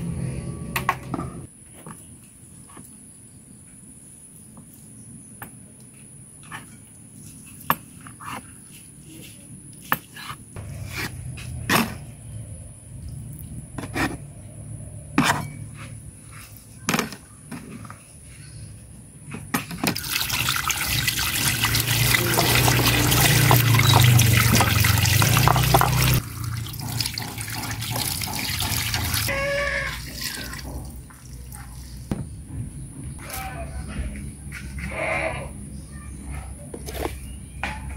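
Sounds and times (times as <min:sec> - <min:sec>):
water pouring from hose: 0:19.9 - 0:32.0.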